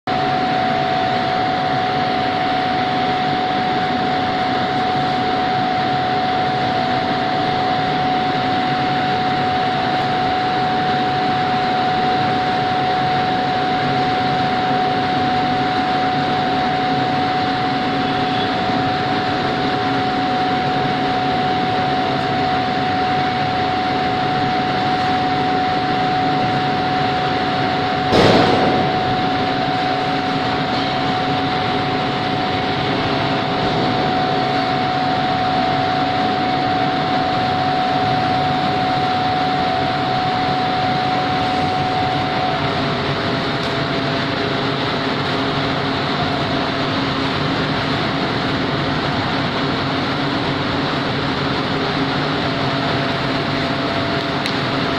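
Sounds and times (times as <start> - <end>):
constant high hum: 0.0 - 54.9
industrial machine noise: 0.0 - 54.9
loud ringing bang: 27.9 - 35.8.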